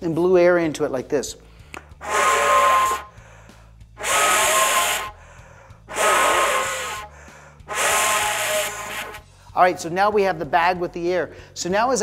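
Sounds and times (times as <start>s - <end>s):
person blowing through hose: 1.7s - 9.3s.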